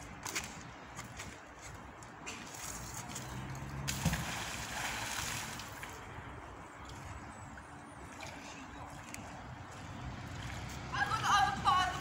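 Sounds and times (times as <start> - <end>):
water noise: 2.3 - 12.0
magnet splashing into water: 3.9 - 5.9.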